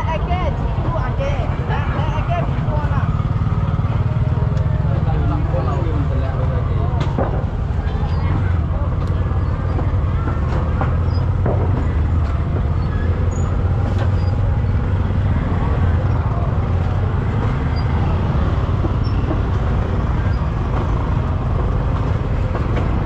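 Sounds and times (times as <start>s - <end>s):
indistinct voices: 0.0s - 23.0s
traffic rumbling by: 0.0s - 23.0s.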